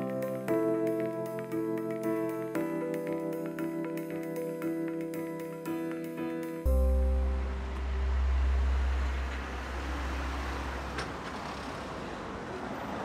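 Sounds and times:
van passing with steady hum: 0:06.7 - 0:13.0
cars driving past: 0:06.8 - 0:13.0.

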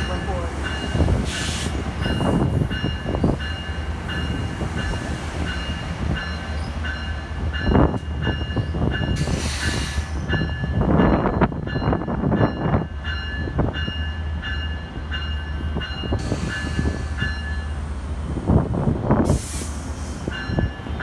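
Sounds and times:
train low rumble: 0:00.0 - 0:21.0
air hiss: 0:09.2 - 0:10.2, 0:19.2 - 0:20.4.

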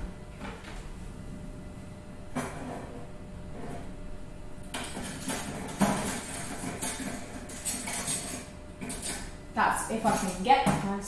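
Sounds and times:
utensils clattering in a holder: 0:04.7 - 0:11.0.

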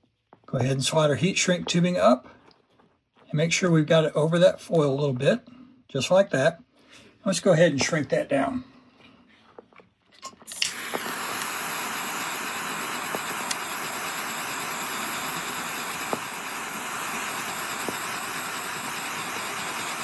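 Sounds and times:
heat gun blowing hot air: 0:10.5 - 0:20.0.

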